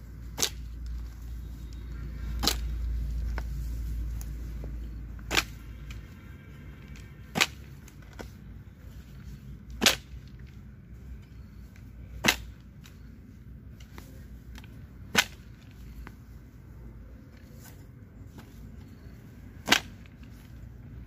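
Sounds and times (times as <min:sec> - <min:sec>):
hoe chopping into soil: 0:00.3 - 0:00.6, 0:12.2 - 0:13.0, 0:15.0 - 0:15.6, 0:19.6 - 0:20.4.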